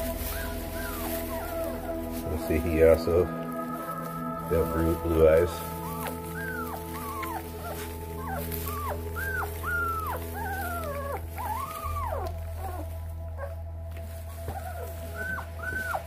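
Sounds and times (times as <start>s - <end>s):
puppy whining: 0.0s - 16.0s.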